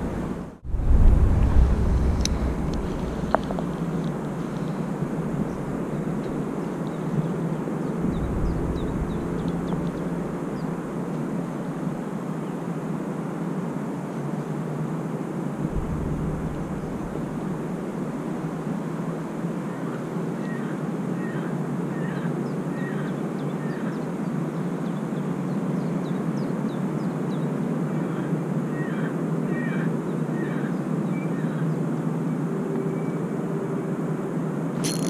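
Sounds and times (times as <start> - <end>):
low rushing background noise: 0.0 - 23.5.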